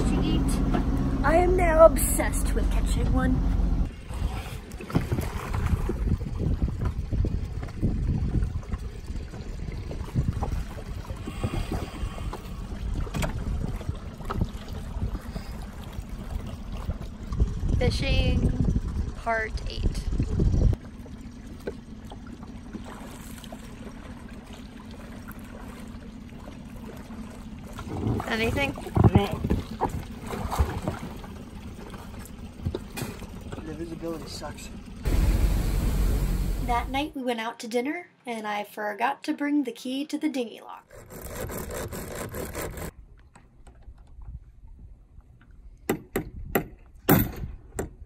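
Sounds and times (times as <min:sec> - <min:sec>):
water lapping against a dinghy: 0:00.0 - 0:35.2, 0:40.8 - 0:46.5
low rumble: 0:00.0 - 0:37.1
small splashes: 0:04.2 - 0:17.6, 0:20.8 - 0:34.8
hacksaw cutting metal: 0:40.9 - 0:42.9.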